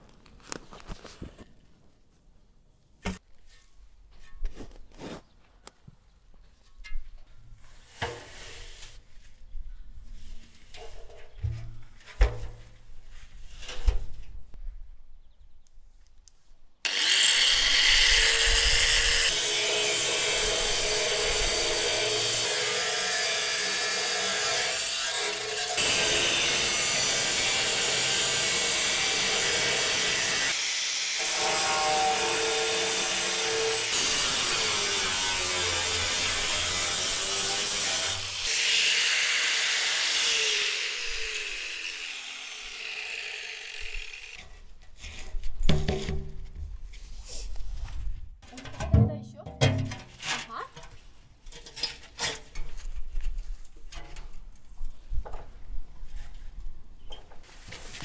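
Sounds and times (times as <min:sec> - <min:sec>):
angle grinder cutting metal: 0:16.9 - 0:44.6.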